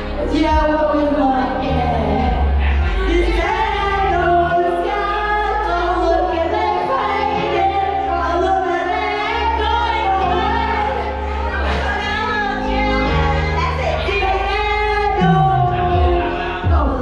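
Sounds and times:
backing track with bass: 0.0s - 17.0s
people singing into microphones: 0.0s - 17.0s.

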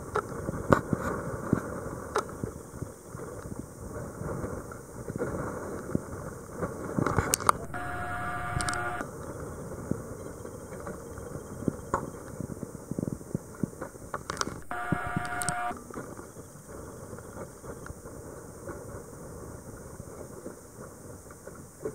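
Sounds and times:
multi-pitched hum: 7.6s - 9.1s, 14.6s - 15.8s.

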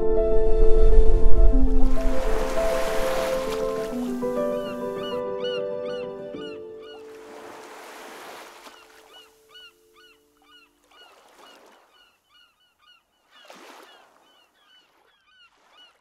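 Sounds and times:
held music chord: 0.0s - 6.9s
birds chirping: 2.6s - 7.6s, 8.6s - 16.0s.

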